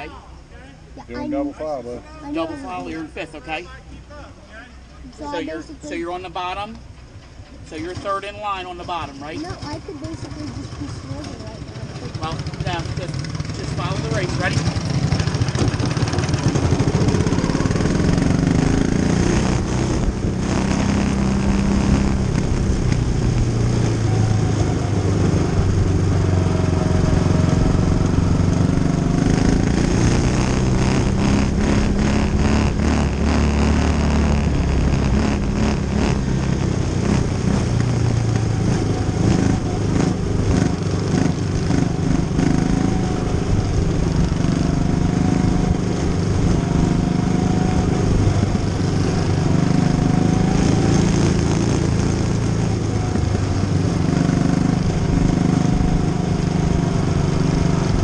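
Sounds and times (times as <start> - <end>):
small race car engine revving: 12.0 - 58.0.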